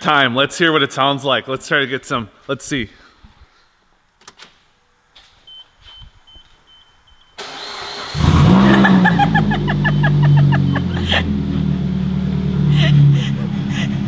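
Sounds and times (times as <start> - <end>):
car starter cranking: 7.4 - 10.2
high steady beep: 9.6 - 11.0.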